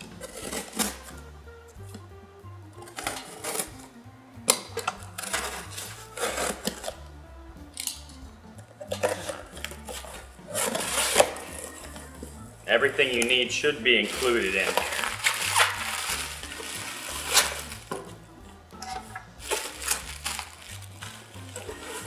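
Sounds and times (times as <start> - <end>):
knife slicing packing tape: 0.0 - 1.1, 2.8 - 3.9, 4.5 - 7.0, 8.9 - 11.8, 14.1 - 17.9, 19.5 - 22.0
background music: 0.0 - 22.0.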